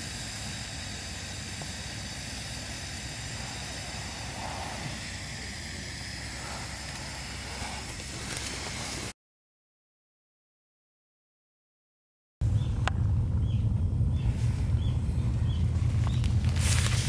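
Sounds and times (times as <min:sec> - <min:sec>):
gas stove burner hissing: 0:00.0 - 0:09.1, 0:12.6 - 0:17.0.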